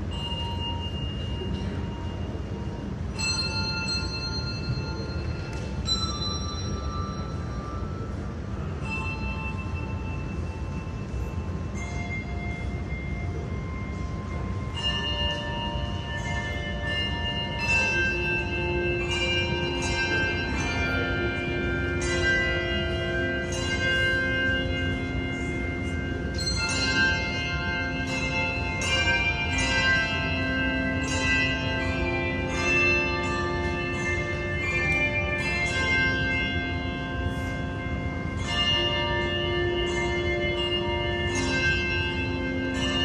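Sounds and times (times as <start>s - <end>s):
bells ringing: 0.0s - 43.0s.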